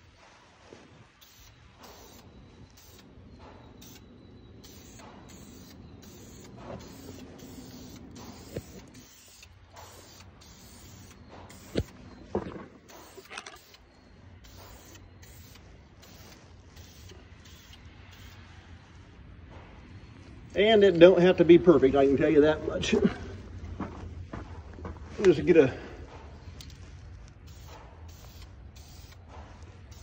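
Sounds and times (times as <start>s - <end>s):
aerosol can hissing bursts: 1.2s - 2.2s, 4.6s - 11.9s, 12.9s - 13.8s, 14.4s - 18.4s, 27.4s - 29.2s.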